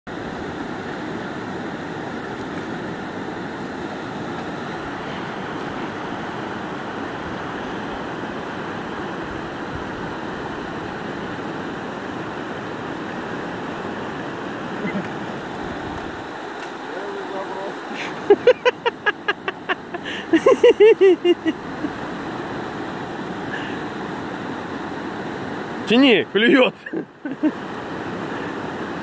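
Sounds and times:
river rushing over rocks: 0.1 - 20.4, 21.2 - 29.0.

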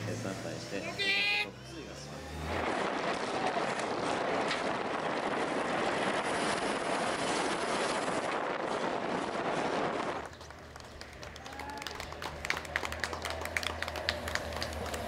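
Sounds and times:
bicycle road noise: 0.0 - 15.0
rush of air: 2.6 - 10.3.

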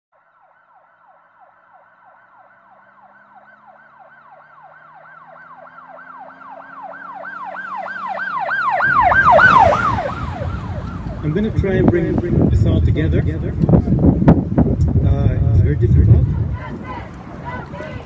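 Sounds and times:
siren yelping: 0.2 - 11.6.

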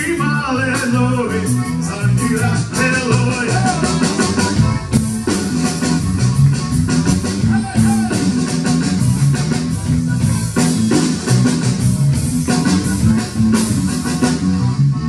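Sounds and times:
backing band with drum beat: 0.0 - 15.0
button accordion playing: 1.1 - 7.4.

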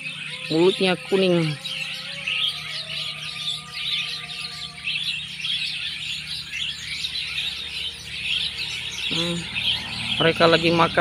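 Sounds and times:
birds chattering high squeaky calls: 0.0 - 11.0.

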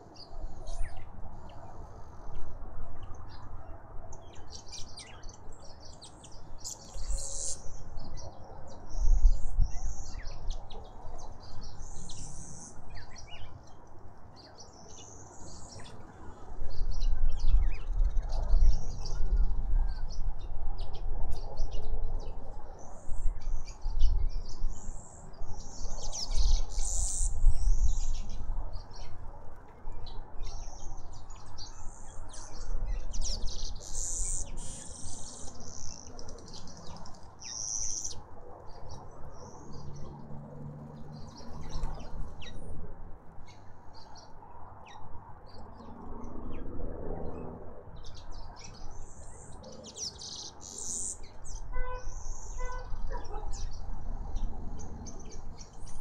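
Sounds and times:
birds chirping and calling: 4.4 - 13.8, 20.8 - 29.2, 30.0 - 40.2, 48.0 - 56.0.

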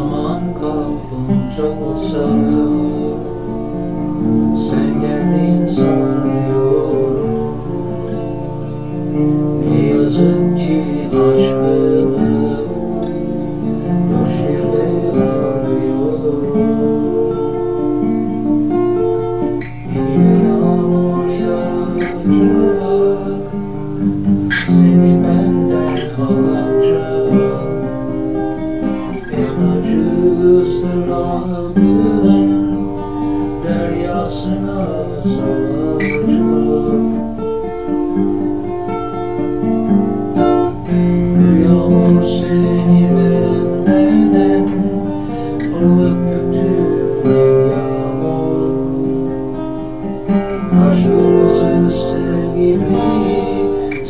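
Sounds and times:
acoustic guitar picking: 0.0 - 54.0.

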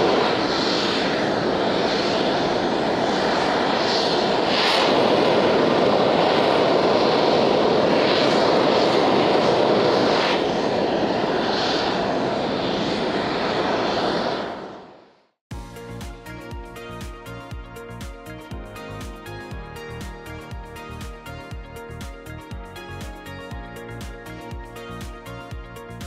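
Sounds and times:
rushing roar of venting gas: 0.0 - 15.3.

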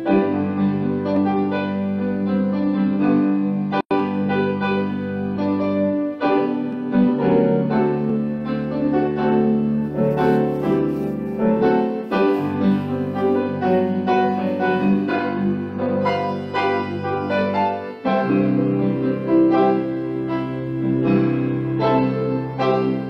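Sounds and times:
hymn played on piano: 0.0 - 23.0.

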